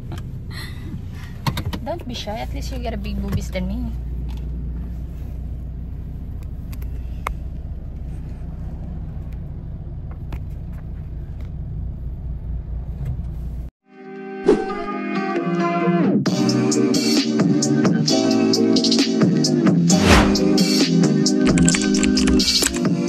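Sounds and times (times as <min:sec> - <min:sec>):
road and engine rumble in car: 0:00.0 - 0:13.8.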